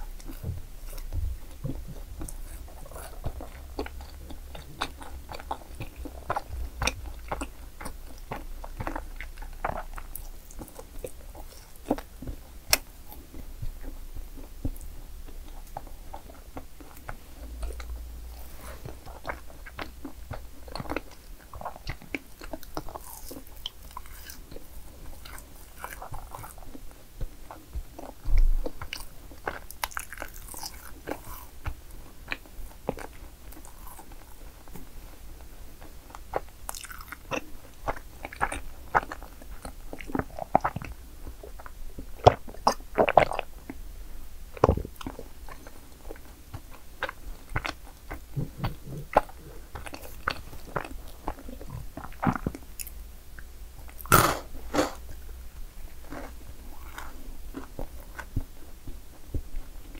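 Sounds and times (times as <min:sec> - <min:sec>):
biting and chewing: 0:00.0 - 0:34.9, 0:35.8 - 0:43.8, 0:44.5 - 0:55.2, 0:55.9 - 0:59.9
wet mouth clicks: 0:53.9 - 0:55.0.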